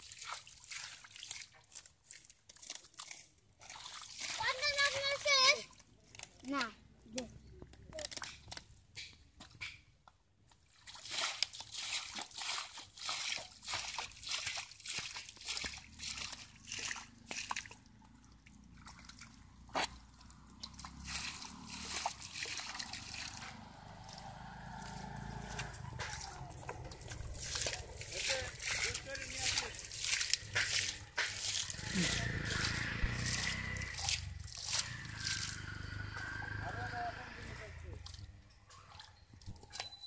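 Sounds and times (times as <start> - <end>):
muddy water splashing: 0.0 - 8.8, 10.5 - 40.0.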